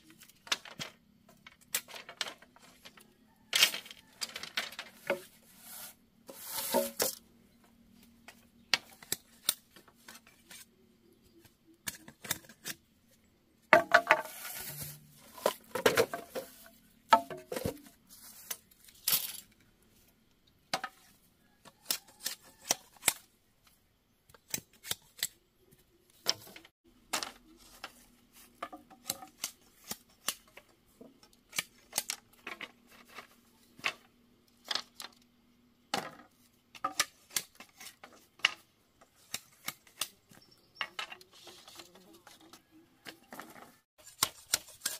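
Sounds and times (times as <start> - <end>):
blade chopping bamboo: 44.0 - 44.9.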